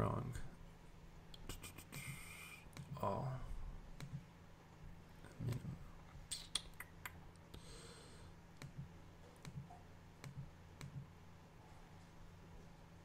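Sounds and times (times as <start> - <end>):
low steady hum: 0.0 - 13.0
computer mouse clicks: 4.0 - 4.2, 8.6 - 11.1.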